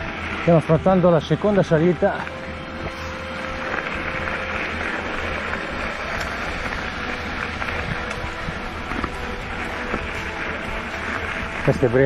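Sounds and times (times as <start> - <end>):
bike tyres rolling on dirt: 0.0 - 12.0.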